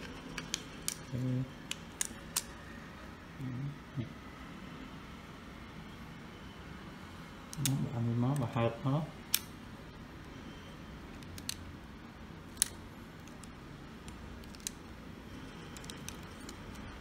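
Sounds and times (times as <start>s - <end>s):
sharp plastic clicks: 9.2s - 9.6s, 11.2s - 11.7s, 12.5s - 14.8s.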